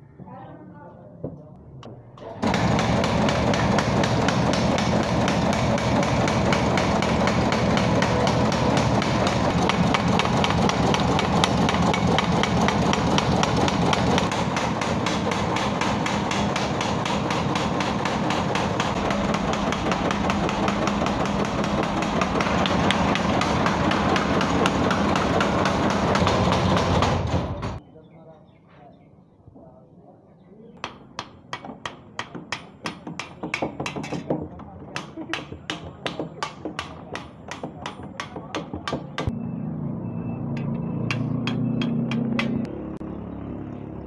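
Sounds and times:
power hammer blows on metal: 0:02.4 - 0:27.8.

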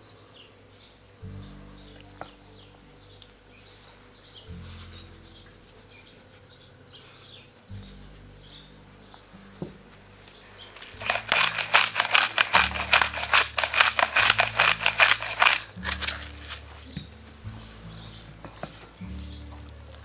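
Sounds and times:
birds chirping: 0:00.0 - 0:20.0
pepper mill grinding: 0:10.8 - 0:16.6.

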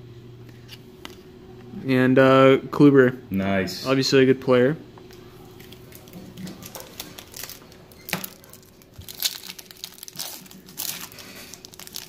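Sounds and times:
foil wrapper crinkling and tearing: 0:05.6 - 0:12.0.

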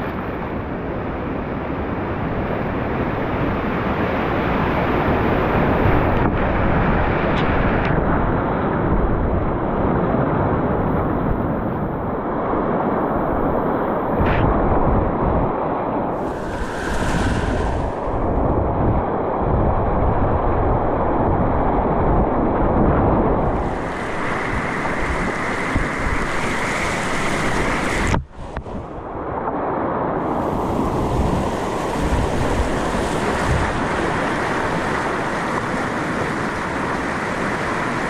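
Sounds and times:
whitewater rushing through rapids: 0:16.2 - 0:18.7, 0:23.4 - 0:29.2, 0:30.2 - 0:38.0.

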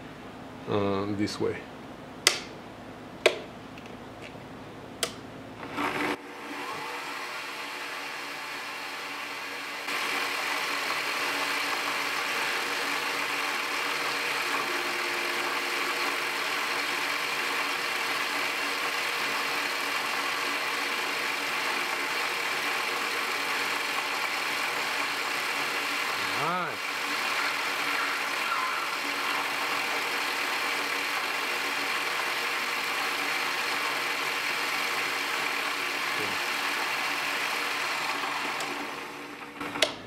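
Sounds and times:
switch click: 0:02.2 - 0:02.5, 0:05.0 - 0:05.2
lathe motor whining: 0:05.6 - 0:40.0.

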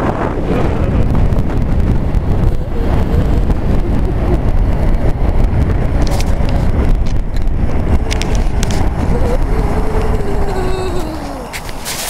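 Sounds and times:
wind buffeting microphone: 0:00.0 - 0:12.0
short crackles: 0:05.4 - 0:12.0.

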